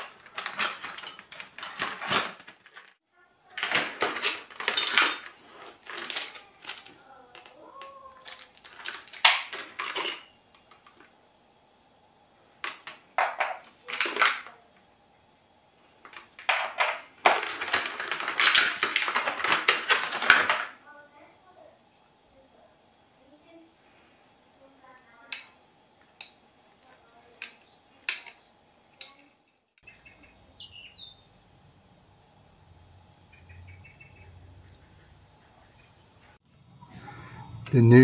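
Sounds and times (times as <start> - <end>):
plastic packaging crackling: 0.0 - 11.1, 16.0 - 20.8.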